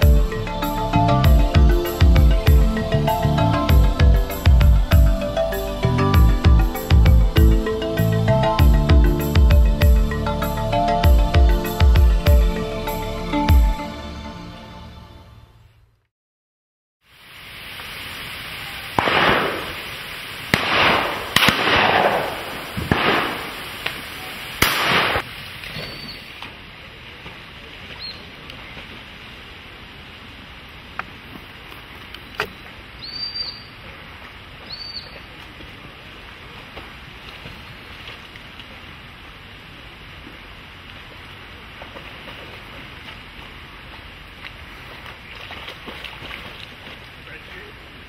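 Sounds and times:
shotgun shots echoing: 19.0 - 19.9, 20.5 - 23.7, 24.6 - 25.2
high bird chirps: 25.8 - 26.3, 33.0 - 33.7, 34.7 - 35.2.

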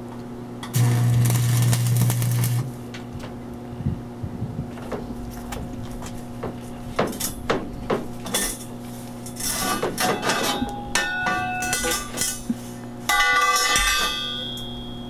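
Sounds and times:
metal tubing clanking and scraping: 8.2 - 14.2.

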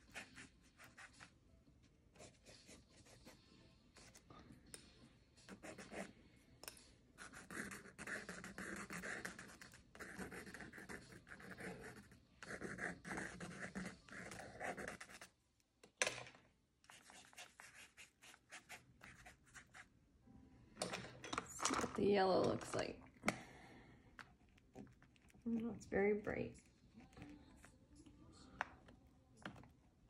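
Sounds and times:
paintbrush scratching on paper: 0.0 - 1.3, 2.1 - 4.3, 5.4 - 6.1, 7.2 - 15.3, 16.9 - 19.9.

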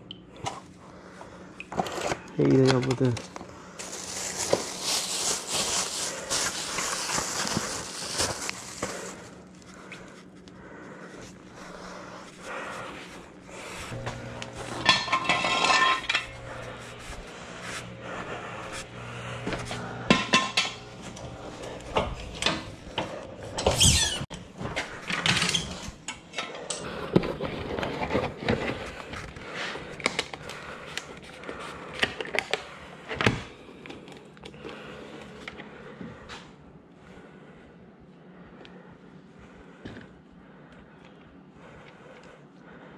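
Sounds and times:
plastic bag crinkling: 2.5 - 9.7
tools and bottles clattering: 13.9 - 16.5, 20.1 - 21.3.

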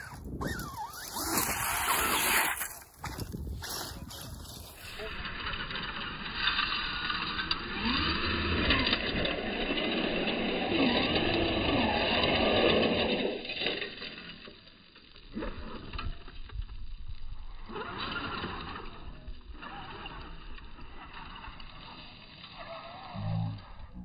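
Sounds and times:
toy car motor whining: 0.0 - 14.2, 17.3 - 23.9
tyres churning gravel: 0.0 - 15.9.

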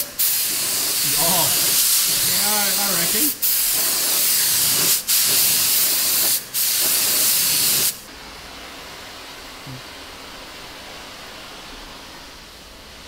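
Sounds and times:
paint spray gun hissing: 0.0 - 8.0.

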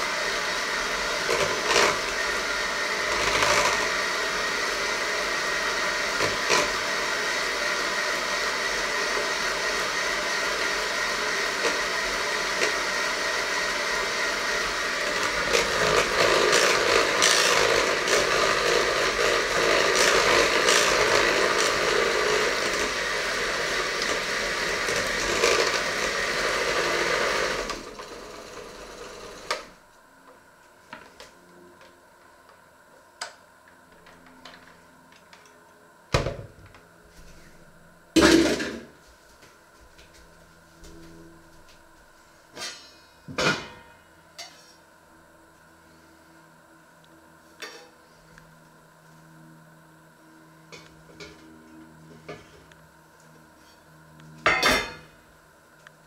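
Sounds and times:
electric hand mixer running: 0.0 - 29.9.

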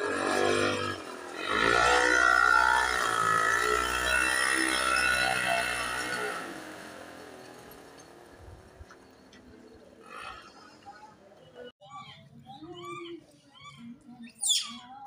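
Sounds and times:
vehicle engine running: 0.0 - 11.4.

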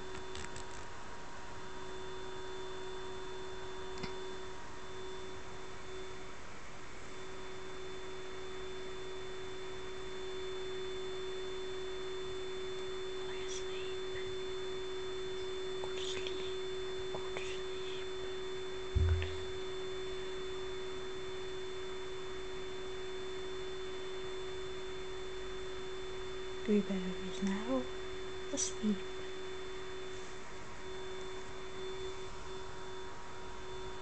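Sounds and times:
faint high whine: 0.0 - 34.0
steady hum: 0.0 - 34.0
brief low thump: 19.0 - 19.6.

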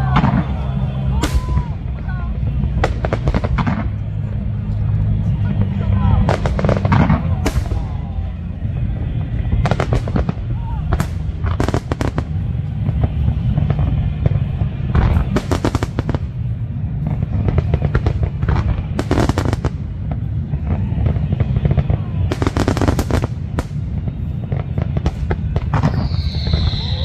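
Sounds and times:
fireworks crackling pops: 0.0 - 27.0
low rumble: 0.0 - 27.0.

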